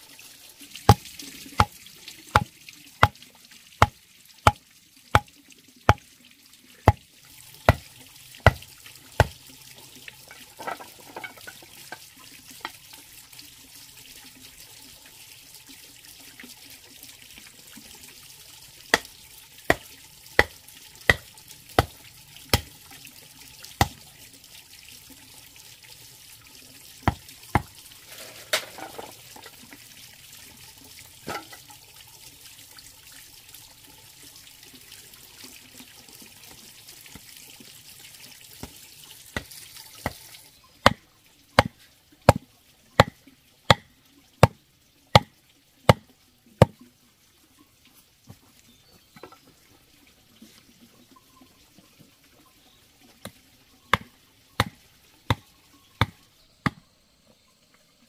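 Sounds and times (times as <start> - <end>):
machete hammering wooden stakes: 2.4 - 3.2, 7.7 - 8.6, 27.1 - 27.7, 39.4 - 40.2, 43.0 - 44.6, 54.0 - 55.4.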